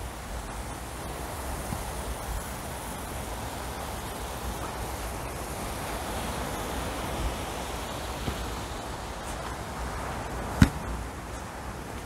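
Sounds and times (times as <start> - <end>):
outdoor rushing ambience: 0.0 - 12.0
sharp knock: 10.6 - 10.8.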